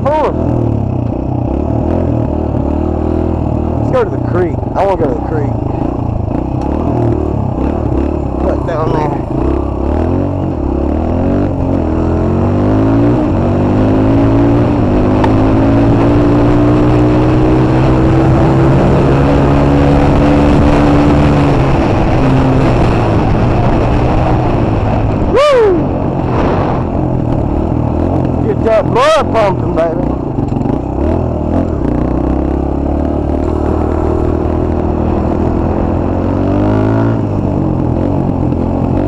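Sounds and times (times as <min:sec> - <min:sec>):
dirt bike engine: 0:00.0 - 0:39.0
quick falling whine: 0:25.1 - 0:27.5.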